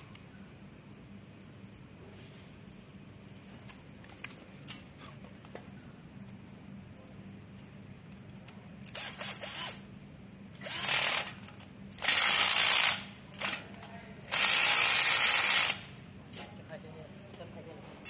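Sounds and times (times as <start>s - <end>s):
electric screwdriver driving screw: 8.8s - 9.8s, 10.6s - 13.1s, 14.3s - 15.8s.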